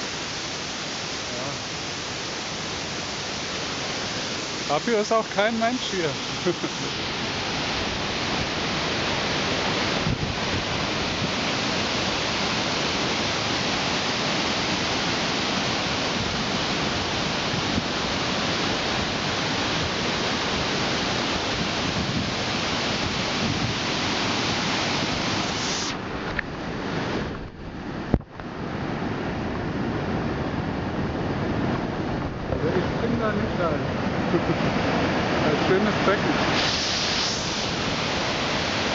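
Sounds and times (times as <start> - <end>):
waterfall rushing over boulders: 0.0 - 38.9.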